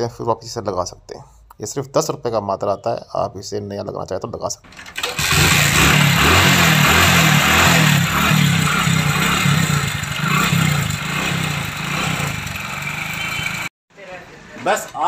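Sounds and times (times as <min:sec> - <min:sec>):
motorcycle engine running: 0:05.0 - 0:13.7.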